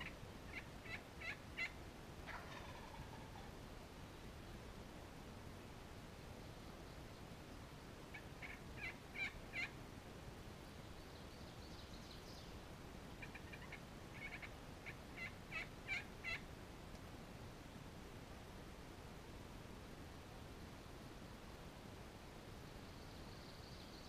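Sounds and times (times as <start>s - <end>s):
wild turkey yelping: 0.0s - 3.6s, 8.1s - 9.8s, 13.2s - 16.4s.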